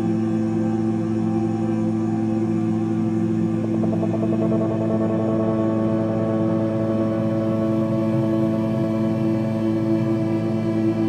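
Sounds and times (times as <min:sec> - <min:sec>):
ambient electronic music: 0:00.0 - 0:11.0.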